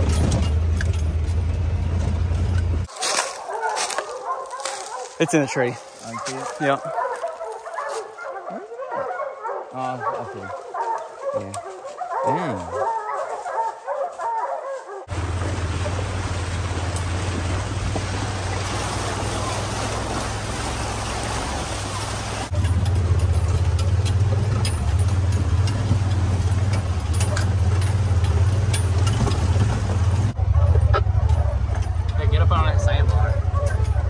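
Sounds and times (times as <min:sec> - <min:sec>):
vehicle engine running: 0:00.0 - 0:02.9, 0:15.0 - 0:34.0
water splashing: 0:15.0 - 0:31.7.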